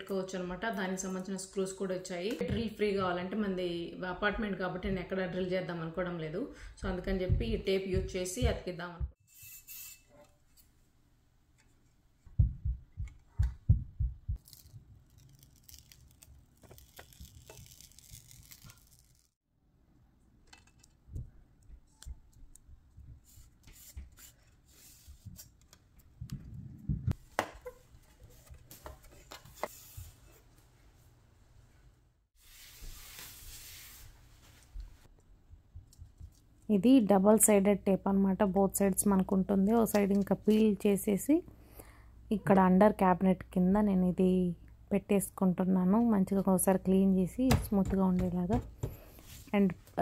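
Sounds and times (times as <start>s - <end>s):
tape backing rustling and peeling: 14.4s - 19.4s.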